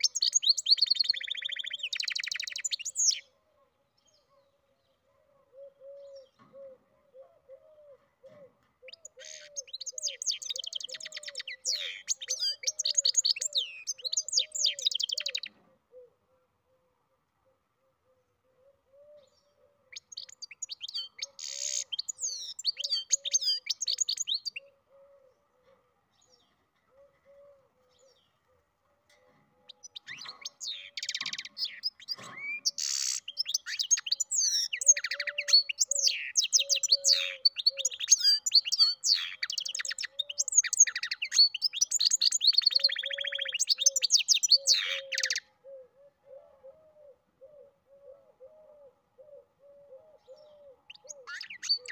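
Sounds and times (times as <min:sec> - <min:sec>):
bird singing twittering and trills: 0:00.0 - 0:03.3, 0:08.8 - 0:15.6, 0:19.3 - 0:24.8, 0:29.6 - 0:45.5, 0:50.2 - 0:51.9.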